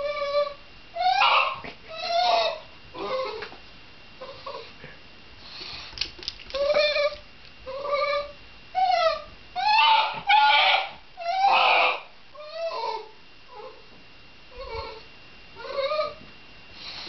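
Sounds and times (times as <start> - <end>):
dog whining: 0.0 - 3.6, 6.5 - 13.9, 14.5 - 16.3.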